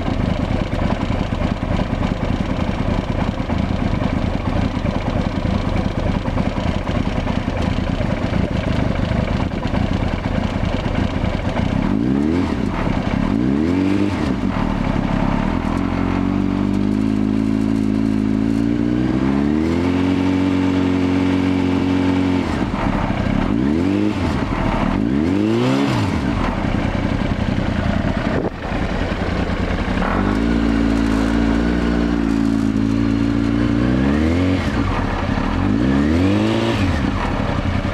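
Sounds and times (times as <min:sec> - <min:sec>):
motorcycle engine idling and revving: 0:00.0 - 0:37.9.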